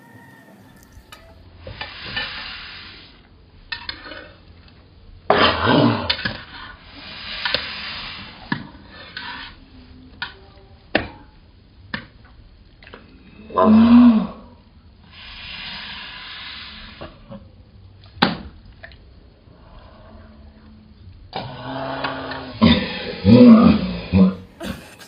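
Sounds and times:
hissing breaths: 0:15.1 - 0:17.2, 0:21.4 - 0:25.0
person groaning: 0:24.3 - 0:25.0.

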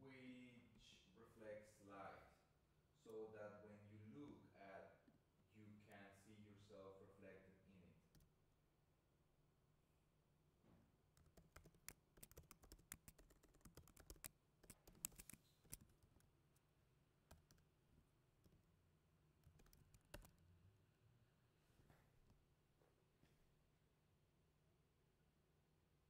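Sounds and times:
computer keyboard typing: 0:11.2 - 0:16.3, 0:17.3 - 0:17.7, 0:19.4 - 0:20.4.

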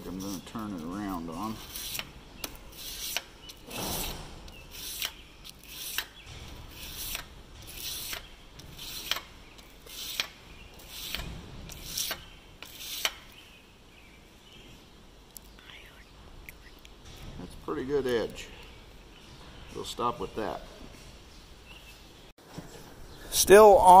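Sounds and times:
knife rasping on sandpaper: 0:00.0 - 0:02.1, 0:02.7 - 0:09.2, 0:09.8 - 0:13.2.

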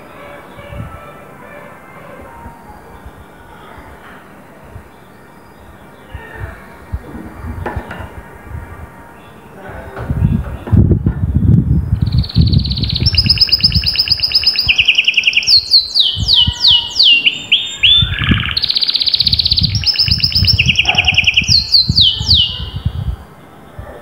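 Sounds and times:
canary singing: 0:11.7 - 0:23.3.

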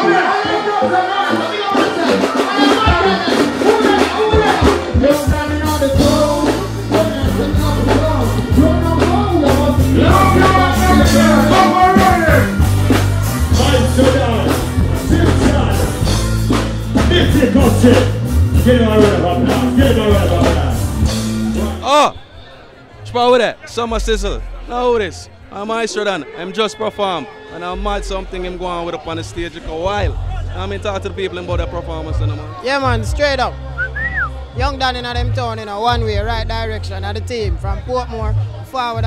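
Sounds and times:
reggae band playing: 0:00.0 - 0:39.0
man singing into a microphone: 0:02.6 - 0:12.5.

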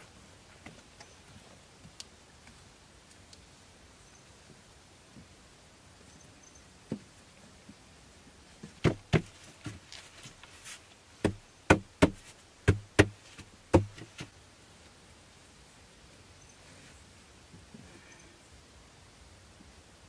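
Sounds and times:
wooden poles knocking: 0:08.8 - 0:09.9, 0:11.2 - 0:14.3.

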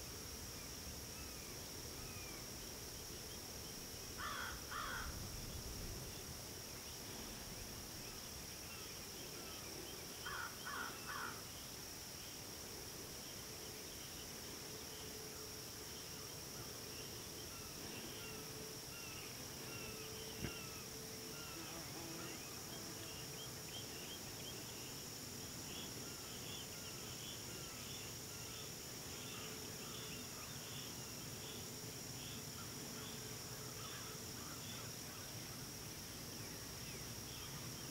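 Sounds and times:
high-pitched insect drone: 0:07.0 - 0:35.7.

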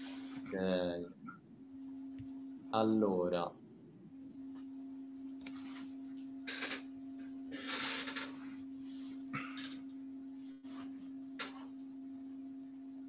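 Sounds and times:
steady low hum: 0:00.0 - 0:13.0
short hissing noises: 0:07.5 - 0:08.4.

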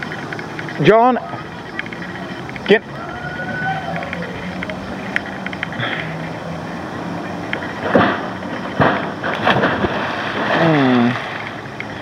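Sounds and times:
diving board banging: 0:07.8 - 0:11.4.

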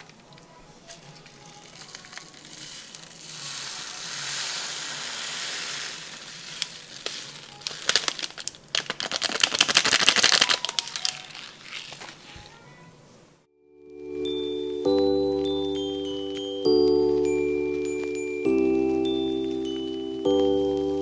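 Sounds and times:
plastic bag crinkling: 0:00.0 - 0:12.8
sprinkles shaken out: 0:00.8 - 0:12.5.

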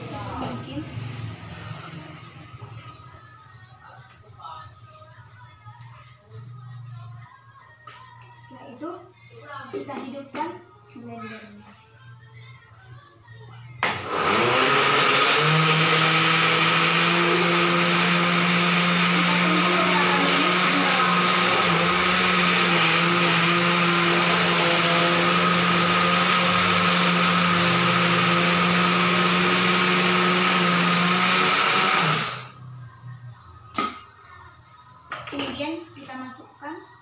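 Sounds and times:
blender motor running: 0:13.8 - 0:32.6.

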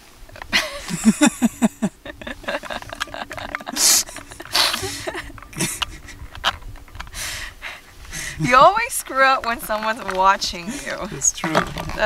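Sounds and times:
woman laughing: 0:00.5 - 0:06.3, 0:07.6 - 0:09.2, 0:10.4 - 0:11.4.

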